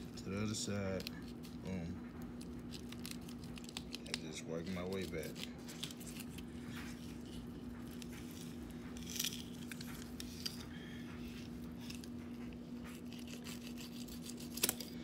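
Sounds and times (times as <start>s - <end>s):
knife scraping on bone and board: 12.8s - 15.0s
knife cutting fish flesh: 12.9s - 15.0s.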